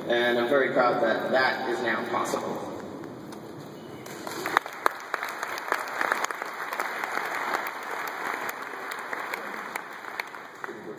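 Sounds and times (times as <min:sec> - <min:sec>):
audience applauding: 0:04.0 - 0:10.9.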